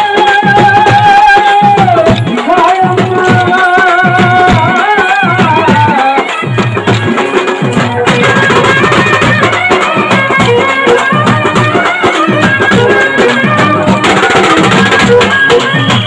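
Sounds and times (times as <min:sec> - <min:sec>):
fast steady drum rhythm: 0:00.0 - 0:16.0
wavering folk melody: 0:06.2 - 0:16.0.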